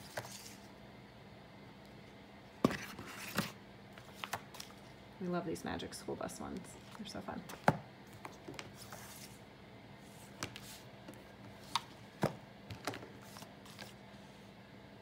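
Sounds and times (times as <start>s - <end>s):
faint steady hum: 0.0s - 15.0s
paper rustling: 8.2s - 9.4s, 12.8s - 14.0s.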